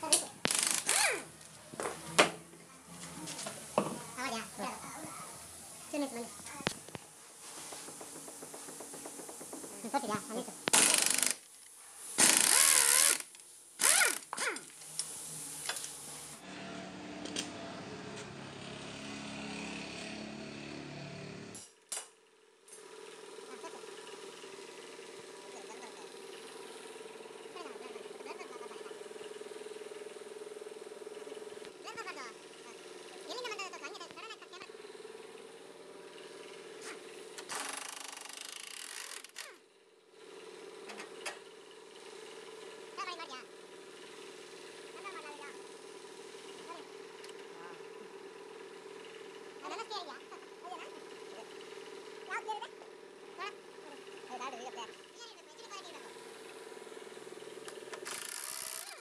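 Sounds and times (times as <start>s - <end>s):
air tool rattling and hissing: 0.0s - 16.4s, 36.1s - 39.6s, 56.2s - 59.0s.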